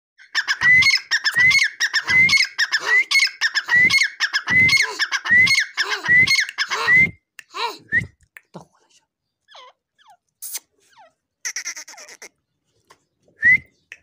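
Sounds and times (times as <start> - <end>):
partridge calling: 0.2 - 6.8, 9.4 - 12.6.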